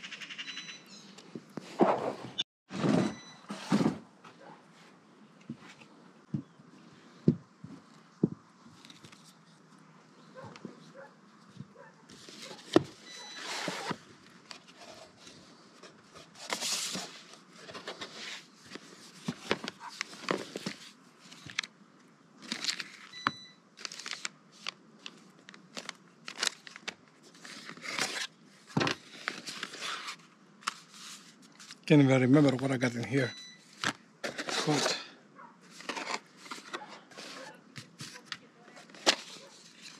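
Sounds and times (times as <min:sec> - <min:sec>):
cardboard rustling and scraping: 0:01.6 - 0:06.0, 0:10.6 - 0:21.6, 0:25.7 - 0:32.6, 0:33.8 - 0:39.9.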